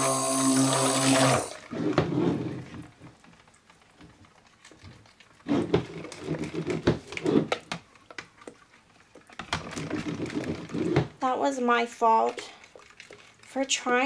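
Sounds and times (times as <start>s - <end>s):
blender head knocking bucket: 0.0s - 2.1s.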